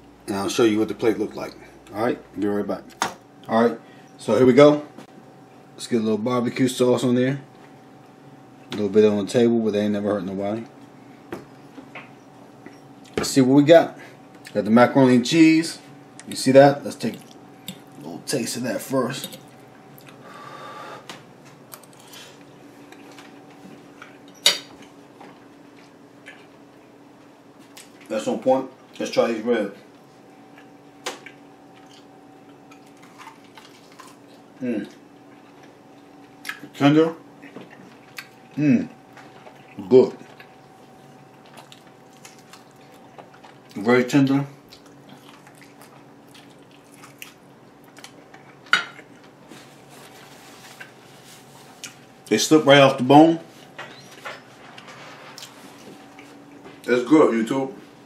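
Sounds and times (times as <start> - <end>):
faint steady hum: 0.0 - 58.0
person chewing: 30.5 - 34.5, 37.4 - 38.6, 39.2 - 43.8, 44.6 - 49.3.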